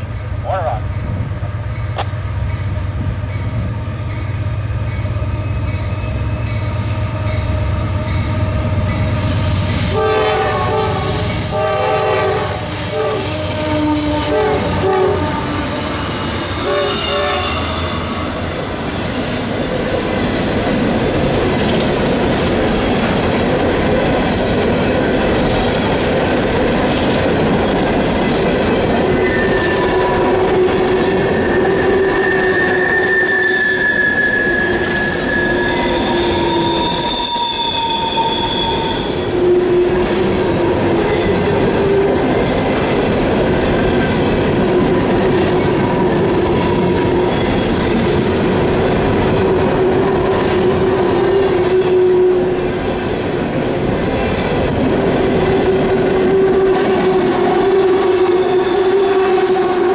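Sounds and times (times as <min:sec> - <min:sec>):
train wheel squeal: 0:08.9 - 0:19.5, 0:29.1 - 0:40.1, 0:55.4 - 0:59.9
train air horn blasts: 0:09.0 - 0:18.4, 0:29.4 - 0:40.1, 0:55.5 - 0:59.9
train wheel clatter: 0:20.4 - 0:33.1.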